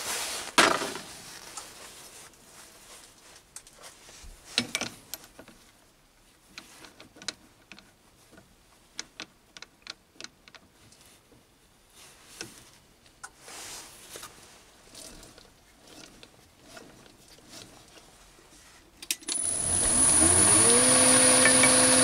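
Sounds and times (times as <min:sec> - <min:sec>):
small metallic clicks and taps: 0:06.6 - 0:11.0
soft brushing hiss: 0:10.9 - 0:15.8.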